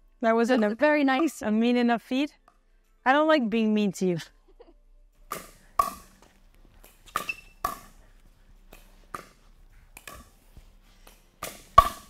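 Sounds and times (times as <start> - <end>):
paddles striking plastic ball: 5.2 - 8.0, 8.7 - 10.4, 11.0 - 12.0
ball bouncing on hard court: 5.3 - 8.0, 8.7 - 12.0.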